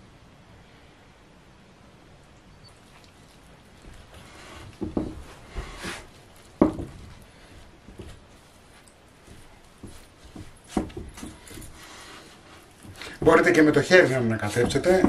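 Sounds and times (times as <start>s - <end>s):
spatula scraping dough in bowl: 6.8s - 15.0s.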